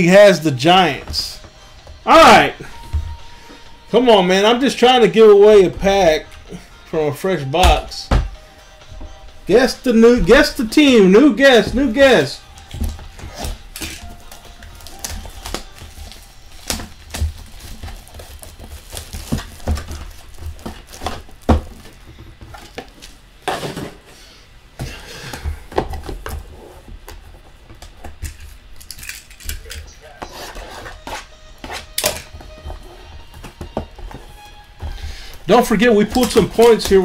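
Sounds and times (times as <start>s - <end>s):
packaging rustling: 9.6s - 23.8s, 31.8s - 37.0s.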